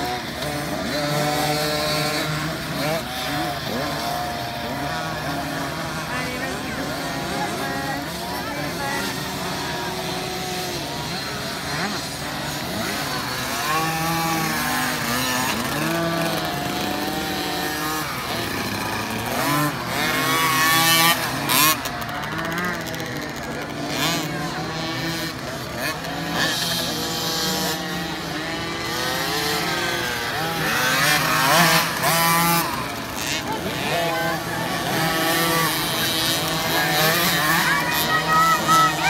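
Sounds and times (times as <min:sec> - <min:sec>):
two-stroke motocross bikes revving: 0:00.0 - 0:39.0
loud rushes of noise: 0:29.3 - 0:39.0.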